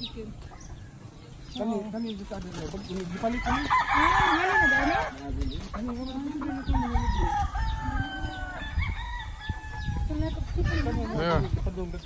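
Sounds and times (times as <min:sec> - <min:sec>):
chickens clucking: 0:00.0 - 0:12.0
rooster crowing: 0:03.3 - 0:05.2, 0:06.4 - 0:10.1.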